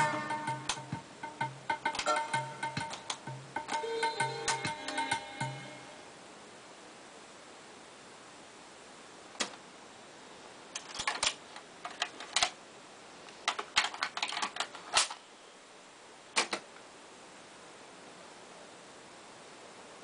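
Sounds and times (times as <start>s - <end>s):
plastic cassette case clatter: 10.8s - 12.6s, 13.5s - 15.2s.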